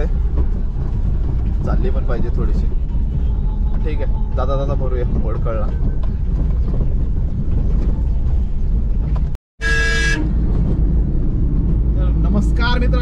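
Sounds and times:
engine and road rumble: 0.0 - 13.0
vehicle horn: 9.6 - 10.4.

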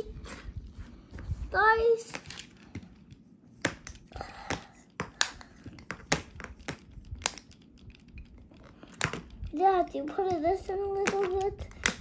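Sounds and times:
plastic roller clicking and tapping: 3.6 - 12.0.

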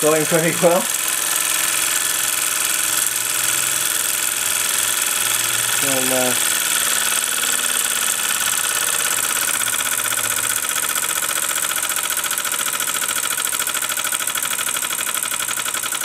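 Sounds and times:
model steam engine running: 0.0 - 16.0.

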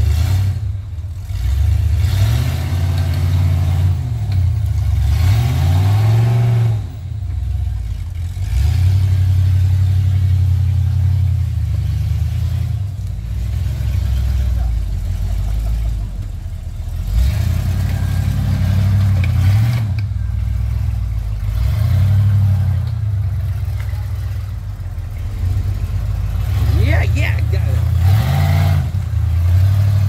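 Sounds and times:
engine revving hard: 0.0 - 4.2, 4.8 - 7.0, 8.3 - 10.6, 17.0 - 20.0, 21.4 - 22.9, 25.4 - 30.0.

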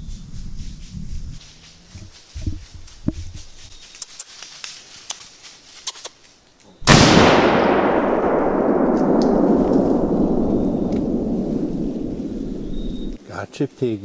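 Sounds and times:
faint clicks and rustles: 1.4 - 6.7
gunshot: 6.8 - 13.2
long loud rumble: 7.0 - 13.2.

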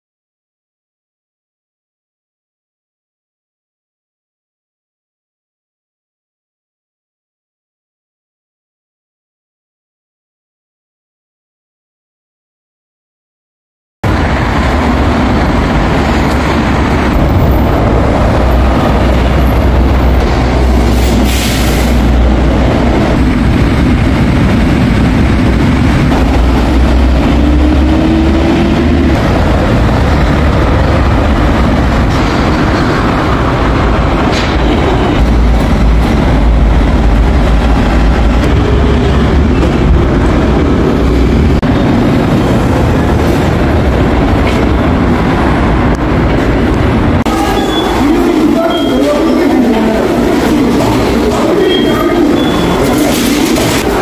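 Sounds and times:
subway train wheels rumbling: 14.0 - 54.0.

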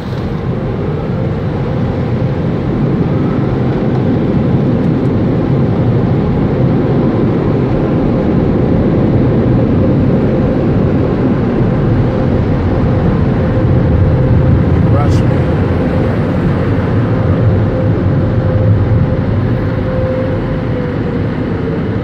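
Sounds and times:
car cabin engine rumble: 0.0 - 5.6, 9.7 - 21.2.

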